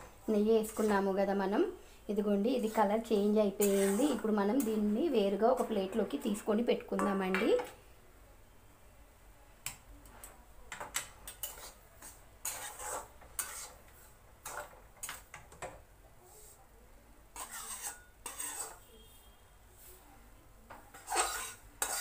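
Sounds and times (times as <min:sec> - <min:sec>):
spatula scraping in metal pan: 0:00.6 - 0:01.2, 0:02.1 - 0:06.6, 0:11.3 - 0:15.4, 0:17.3 - 0:19.2, 0:20.9 - 0:22.0.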